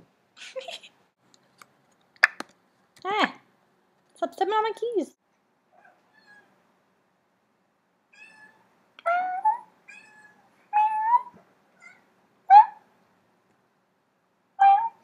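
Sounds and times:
cat meowing: 5.8s - 6.5s, 8.1s - 12.1s.

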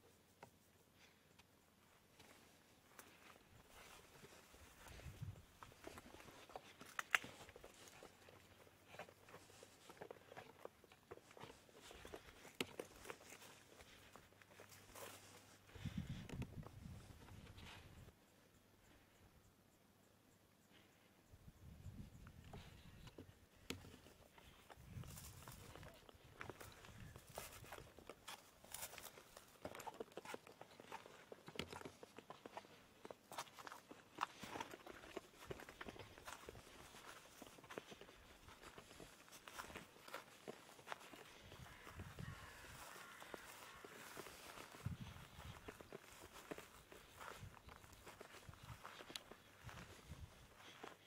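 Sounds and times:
footsteps on stony ground: 2.1s - 18.2s, 22.5s - 51.0s.

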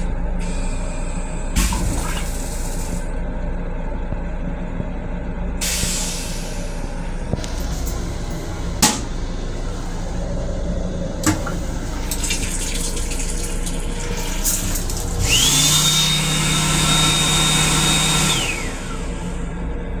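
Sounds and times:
low hum: 0.0s - 15.8s
faucet water running into basin: 11.4s - 15.3s
small electric motor whining: 15.2s - 19.0s.

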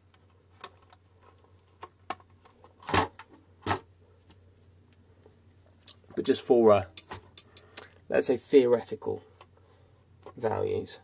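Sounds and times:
light clicks and taps handling wires: 6.9s - 8.1s.

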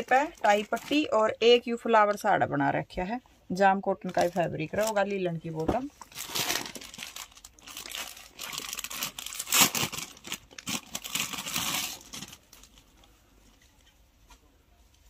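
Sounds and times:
suit crinkling and rustling: 4.0s - 15.0s.

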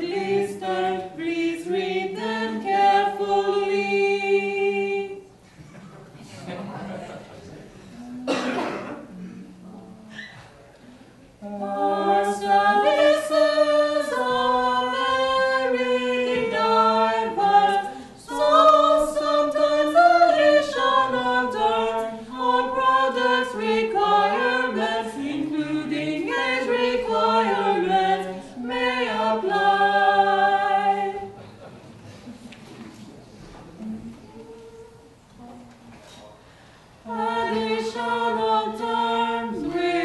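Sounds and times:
a cappella choir singing in harmony: 0.0s - 5.4s, 11.4s - 31.5s, 37.0s - 40.0s.

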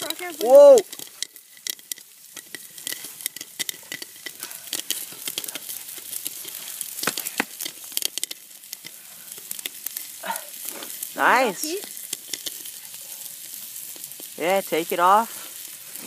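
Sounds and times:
oil sizzling: 0.0s - 16.0s
popcorn popping: 0.0s - 16.0s.

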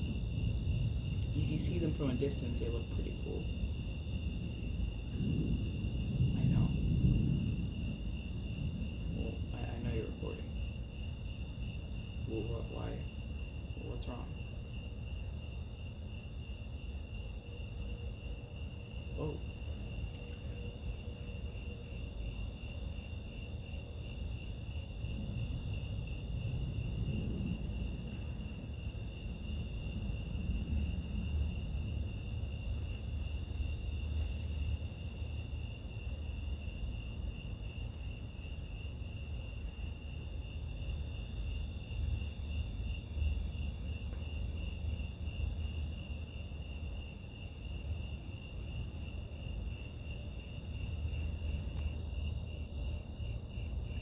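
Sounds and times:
low rumbling noise: 0.0s - 45.9s
crickets chirping: 0.0s - 54.0s.

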